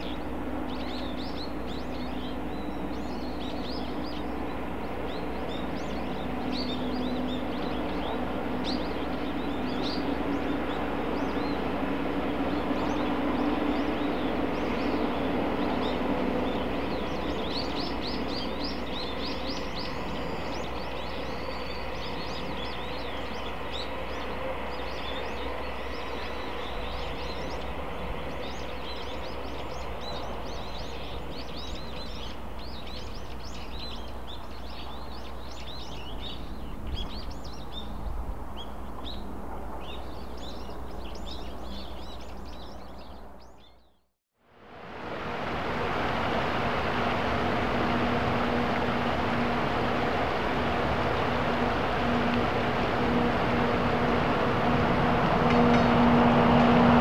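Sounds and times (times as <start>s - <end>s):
distant hum: 0.0s - 32.8s, 44.7s - 57.0s
small birds chirping: 0.0s - 44.0s.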